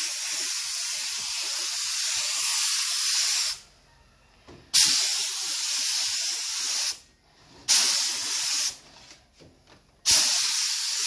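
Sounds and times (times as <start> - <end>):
paint spray gun hissing: 0.0 - 3.6, 4.8 - 7.0, 7.7 - 8.8, 10.1 - 11.0.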